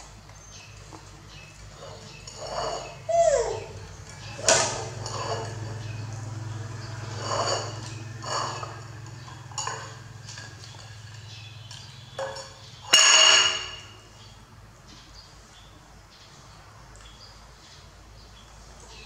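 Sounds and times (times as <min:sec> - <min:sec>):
ceramic plate clinking on tiles: 0:01.7 - 0:14.1
plate clattering on tiles: 0:04.0 - 0:11.2, 0:11.8 - 0:14.0.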